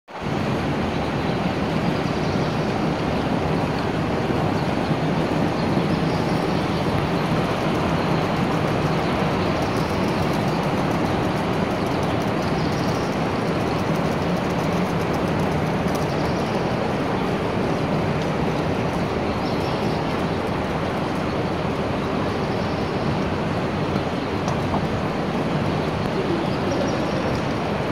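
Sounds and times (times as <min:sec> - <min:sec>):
background rumble and hiss: 0:03.2 - 0:27.9.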